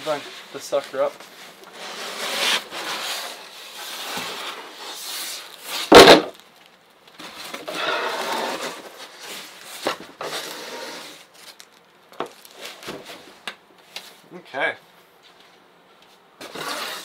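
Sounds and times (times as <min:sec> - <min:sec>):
cardboard box rustling and scraping: 0:07.3 - 0:11.2.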